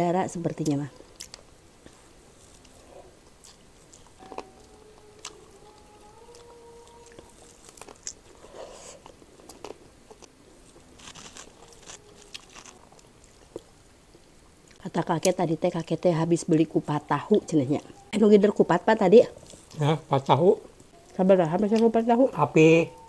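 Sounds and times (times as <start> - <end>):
chewing and crunching food: 0.5 - 16.0, 19.2 - 22.0.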